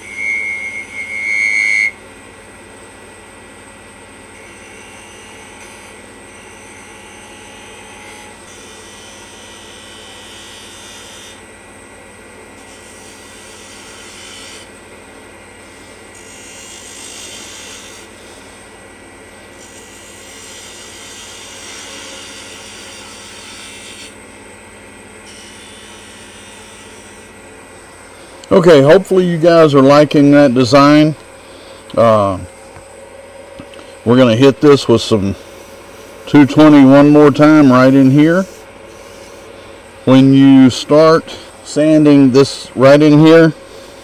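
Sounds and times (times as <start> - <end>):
wood lathe motor whine: 0.0 - 44.0
turning tool scraping wood: 33.6 - 42.2.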